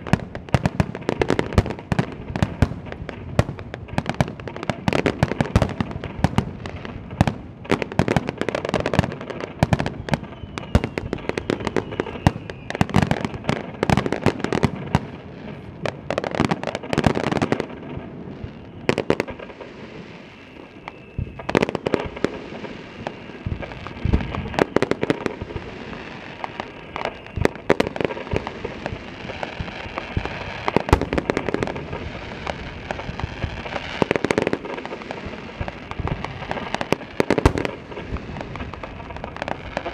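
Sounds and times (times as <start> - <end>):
fireworks bursting: 0.0 - 39.9
fireworks crackling: 0.0 - 39.9.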